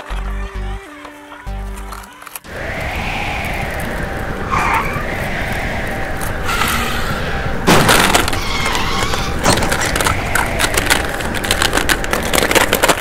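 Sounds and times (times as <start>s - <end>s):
plastic toy eggs clattering: 0.0s - 2.5s, 7.9s - 13.0s
plastic eggs clicking as they land: 9.0s - 13.0s.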